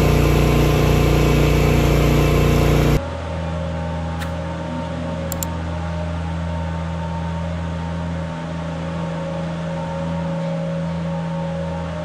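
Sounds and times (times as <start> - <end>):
tractor engine running: 0.0 - 3.0.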